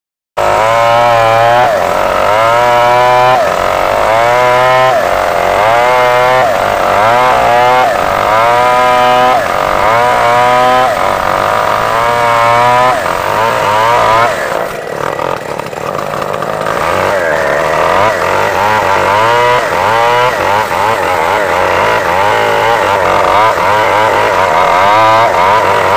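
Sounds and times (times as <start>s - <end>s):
chainsaw cutting through log: 0.4s - 25.9s.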